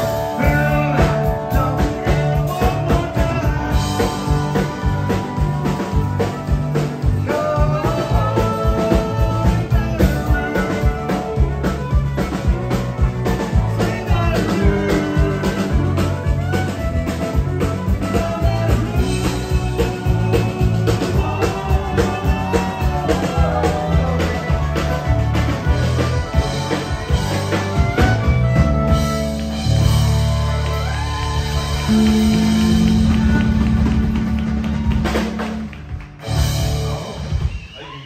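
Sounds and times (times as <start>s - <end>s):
live country band playing: 0.0s - 37.8s
fiddle: 1.6s - 36.0s.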